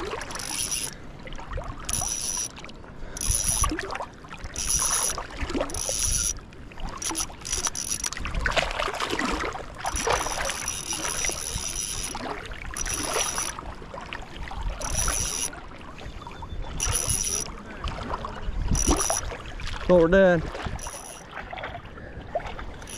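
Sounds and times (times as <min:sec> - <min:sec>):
sea water sloshing from wading: 0:00.0 - 0:22.9
wind rumble on microphone: 0:08.1 - 0:10.5, 0:13.4 - 0:22.9.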